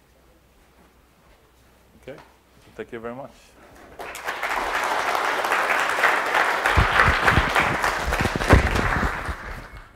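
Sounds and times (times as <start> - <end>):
audience clapping: 3.7 - 9.9.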